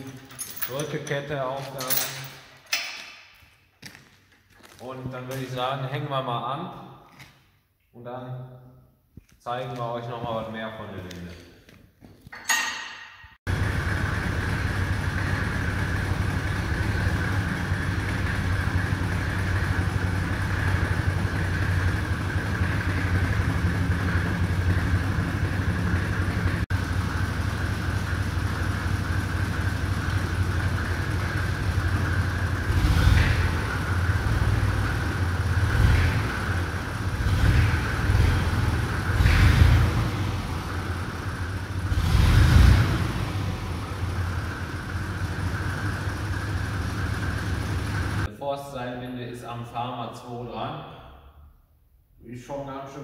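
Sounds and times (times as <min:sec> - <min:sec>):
tractor diesel engine revving: 0:13.5 - 0:48.3.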